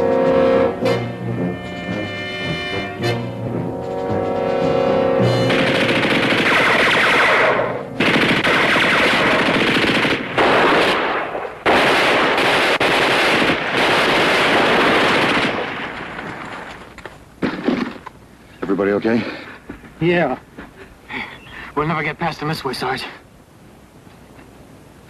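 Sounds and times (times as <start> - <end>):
orchestral brass music: 0.0 - 6.8
machine-gun fire: 5.5 - 16.5.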